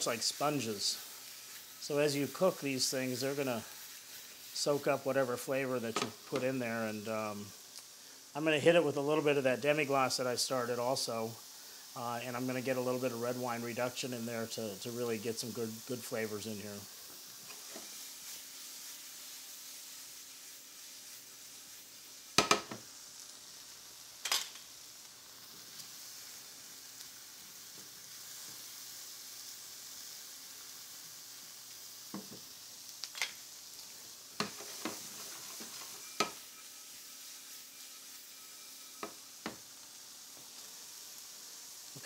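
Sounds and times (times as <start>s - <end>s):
mushrooms sizzling in a pan: 0.0s - 42.0s.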